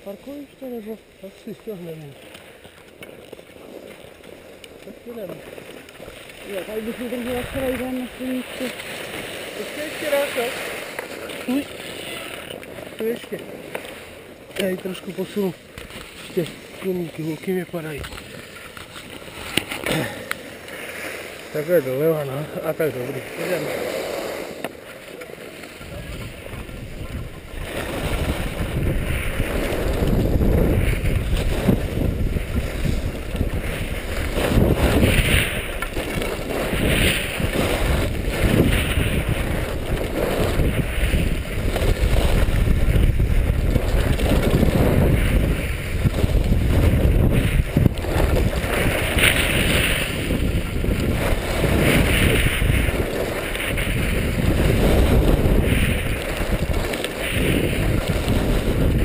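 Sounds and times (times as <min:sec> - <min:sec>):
skis hissing on packed snow: 0:00.0 - 0:59.0
wind rushing over microphone: 0:06.4 - 0:11.8, 0:25.8 - 0:59.0.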